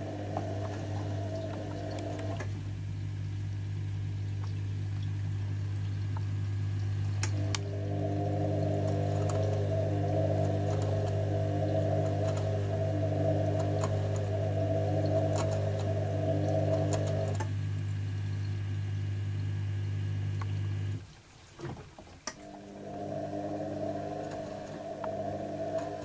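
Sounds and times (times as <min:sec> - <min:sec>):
washing machine drum humming: 0:00.0 - 0:21.0, 0:21.6 - 0:26.0.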